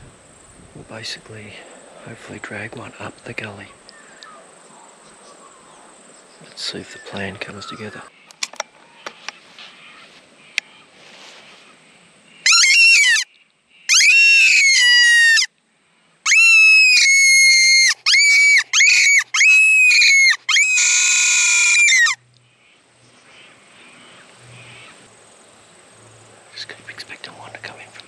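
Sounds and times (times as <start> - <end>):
whistle squeals: 12.4 - 13.3, 13.9 - 15.5, 16.3 - 22.2.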